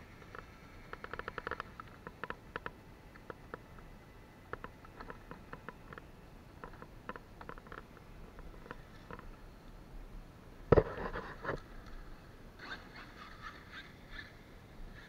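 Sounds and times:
small clicks and rustles: 0.0s - 9.8s.

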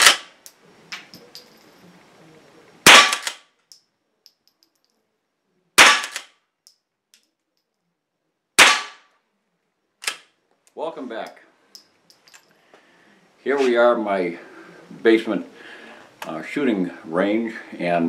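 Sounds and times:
rifle shots with room echo: 0.0s - 0.3s, 2.8s - 3.5s, 5.8s - 6.4s, 8.6s - 9.1s.

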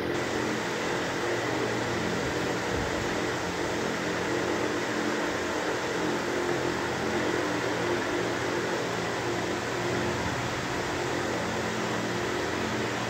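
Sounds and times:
mechanical hum: 0.0s - 13.0s.

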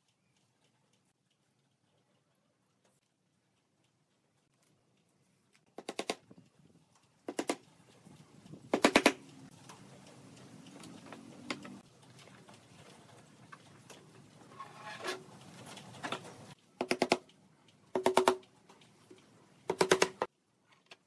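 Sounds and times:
mallet tapping nails into wood: 17.9s - 18.4s.

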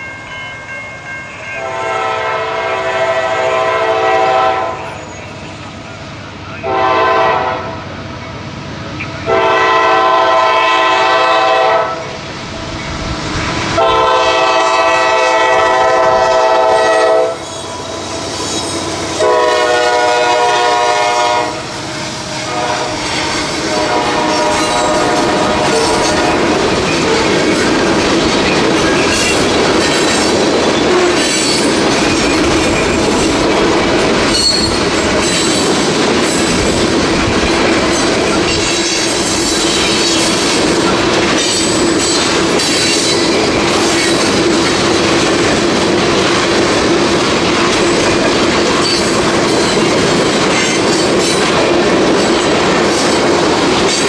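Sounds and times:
freight train rumbling past: 0.0s - 54.0s
horn-like pitched tone: 13.8s - 17.6s, 19.2s - 21.6s
wheel squeal: 34.3s - 35.7s.

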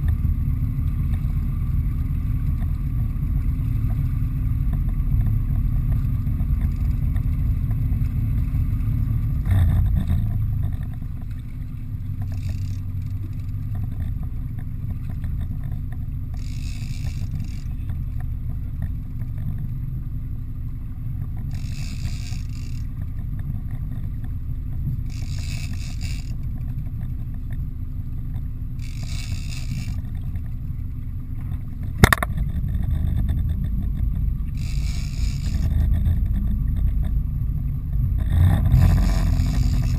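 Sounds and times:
boat engine rumbling: 0.0s - 39.9s
fishing reel whirring: 10.6s - 19.4s, 21.4s - 24.0s, 25.0s - 27.6s, 28.6s - 30.7s, 32.0s - 37.1s, 38.8s - 39.9s.

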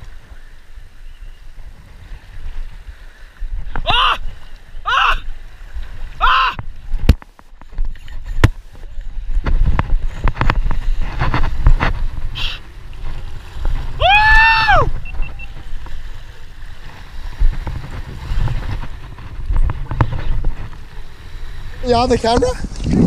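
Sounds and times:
wind on microphone: 0.0s - 23.0s
loud high cry: 6.2s - 6.6s, 14.0s - 14.9s
waves washing over rocks: 7.8s - 23.0s.

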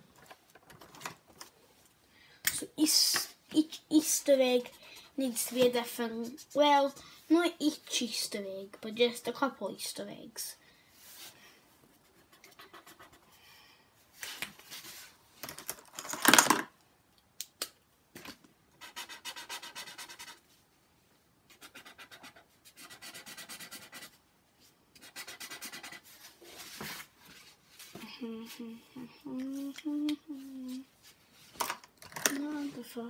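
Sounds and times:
pencil scribbling on paper: 18.8s - 20.4s, 21.5s - 24.2s, 25.0s - 26.3s
child humming: 28.0s - 30.9s.

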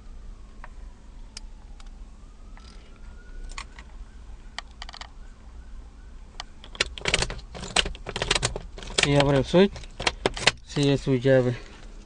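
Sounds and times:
car key clicking in ignition: 6.4s - 10.9s
key rattle: 6.6s - 10.9s.

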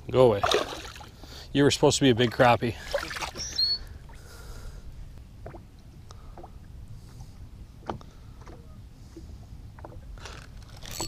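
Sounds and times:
water lapping around boat: 0.0s - 11.0s
wind: 0.0s - 11.0s
short high squeak: 3.3s - 3.8s.

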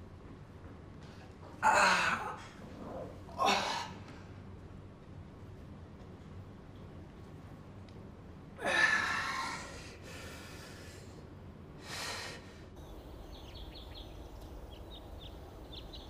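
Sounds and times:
low outdoor hum: 0.0s - 16.0s
small birds chirping: 12.8s - 16.0s.

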